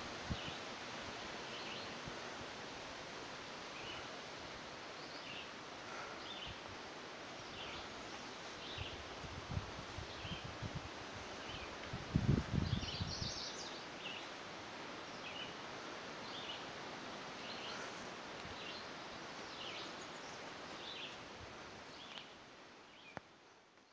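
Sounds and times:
steady background hiss: 0.0 - 23.9
birds chirping: 15.0 - 23.2.

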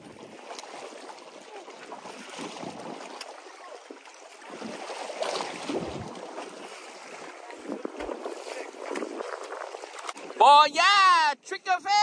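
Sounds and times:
water sloshing against hull: 0.0 - 10.4
wind on microphone: 4.5 - 10.4.

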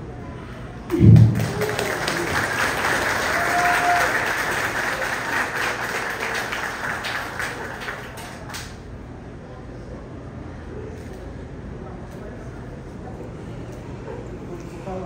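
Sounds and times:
people applauding: 0.9 - 8.8.

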